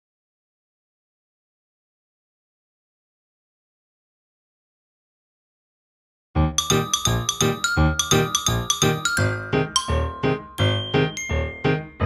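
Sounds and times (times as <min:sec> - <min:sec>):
bright keyboard tune with bass: 0:06.4 - 0:12.0.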